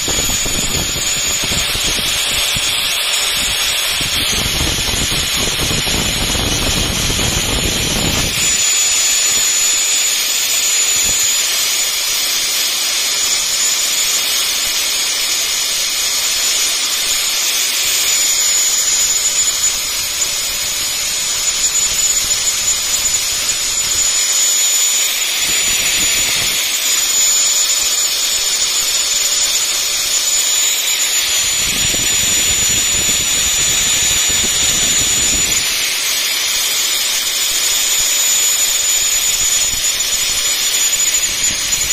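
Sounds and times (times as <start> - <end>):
angle grinder grinding steel: 0.0 - 41.9.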